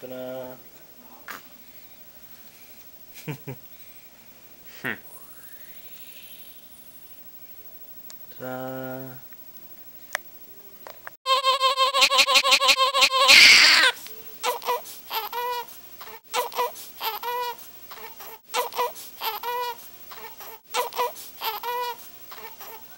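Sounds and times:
baby crying: 0:11.3 - 0:22.9.

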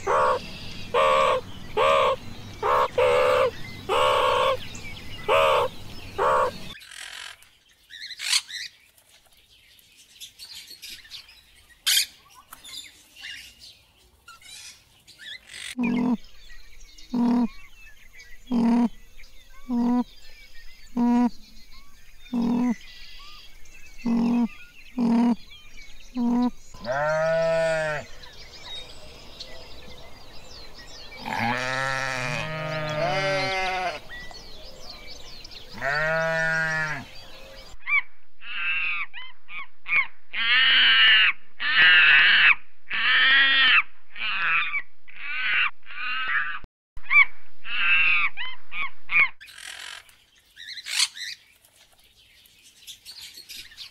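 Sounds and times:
animal calls: 0:00.0 - 0:07.4, 0:14.4 - 0:16.2, 0:17.1 - 0:17.6, 0:18.5 - 0:19.0, 0:19.6 - 0:20.1, 0:20.9 - 0:21.4, 0:22.3 - 0:22.8, 0:24.0 - 0:25.4, 0:26.1 - 0:28.3, 0:31.2 - 0:34.0
high-pitched chirping calls: 0:00.0 - 0:08.7, 0:14.3 - 0:16.4, 0:17.0 - 0:17.7, 0:18.4 - 0:21.6, 0:22.3 - 0:23.4, 0:24.0 - 0:27.1
wavering bleat-like calls: 0:15.7 - 0:16.2, 0:17.1 - 0:17.5, 0:18.5 - 0:18.9, 0:19.7 - 0:20.1, 0:21.0 - 0:21.3, 0:22.3 - 0:22.8, 0:24.0 - 0:25.4, 0:26.2 - 0:28.1, 0:31.2 - 0:34.1, 0:35.7 - 0:37.1.

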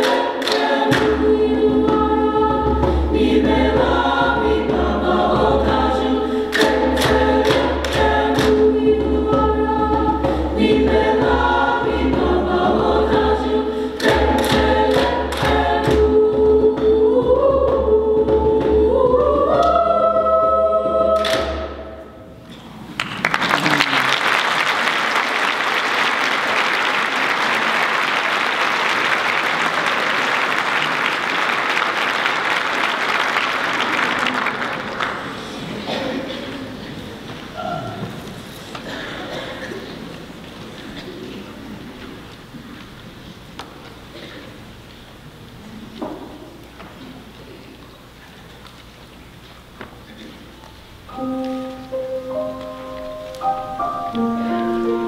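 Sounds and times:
singers clapping in rhythm: 0:00.0 - 0:16.7, 0:19.3 - 0:19.9, 0:21.0 - 0:21.8, 0:23.0 - 0:35.5
choir singing: 0:00.0 - 0:22.4, 0:51.1 - 0:55.0
audience applauding: 0:22.9 - 0:35.7.

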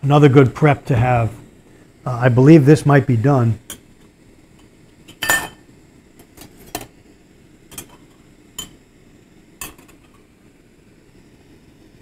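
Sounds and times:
knife clinking on metal pot lid: 0:05.1 - 0:05.6.

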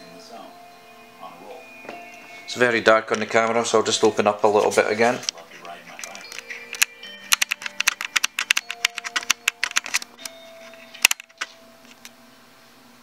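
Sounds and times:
faint television music: 0:00.0 - 0:12.2
camera dial clicking: 0:06.0 - 0:10.3, 0:11.0 - 0:12.1.

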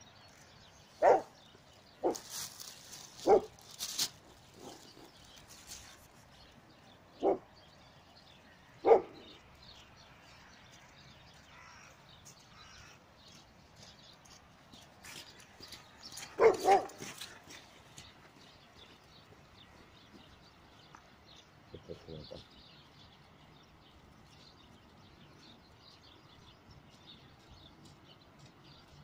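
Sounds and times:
dog barking: 0:01.0 - 0:01.4, 0:03.2 - 0:03.6, 0:07.2 - 0:07.4, 0:08.8 - 0:09.2, 0:16.4 - 0:17.0.

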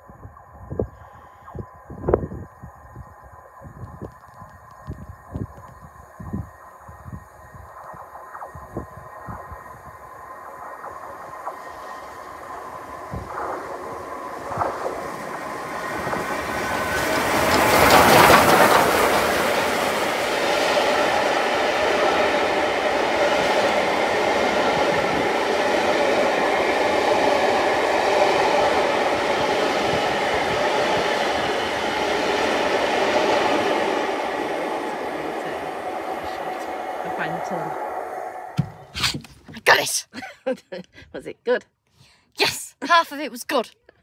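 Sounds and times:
steam locomotive passing: 0:06.5 - 0:39.1
train wheels on rails: 0:10.2 - 0:39.3.

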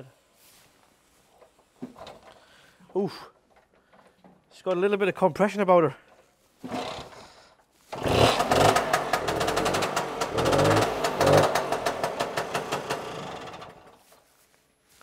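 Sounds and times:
scooter engine kick-started: 0:06.6 - 0:07.3, 0:07.9 - 0:14.0
scooter engine popping: 0:08.0 - 0:14.0.

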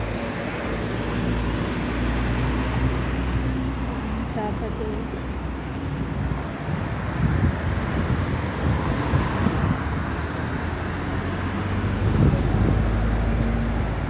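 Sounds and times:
road traffic passing: 0:00.0 - 0:14.0
vehicle engine hum: 0:00.0 - 0:14.0
wind rumbling on microphone: 0:05.1 - 0:14.0.

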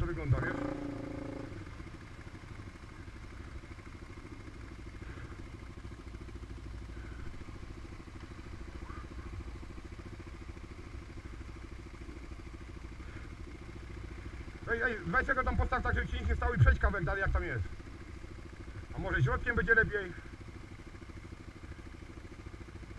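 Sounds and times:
quad engine running: 0:00.0 - 0:22.9.

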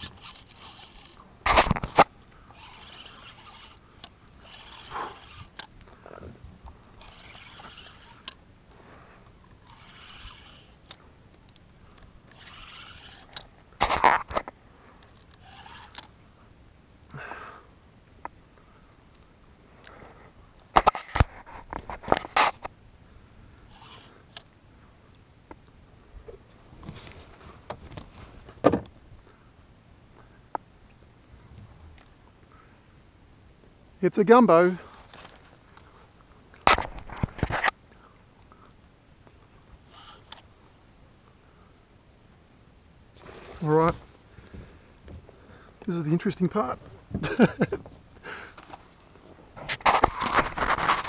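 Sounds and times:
spinning reel cranking: 0:00.0 - 0:05.7, 0:06.8 - 0:08.4, 0:09.5 - 0:11.0, 0:12.3 - 0:14.3, 0:15.1 - 0:16.1, 0:23.7 - 0:24.4
knocks and scrapes: 0:48.7 - 0:51.0.

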